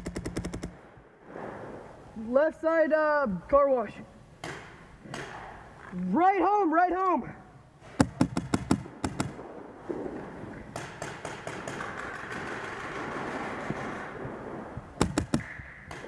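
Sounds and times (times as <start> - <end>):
paintball marker firing: 4.4 - 5.6, 7.9 - 9.4, 15.0 - 16.0.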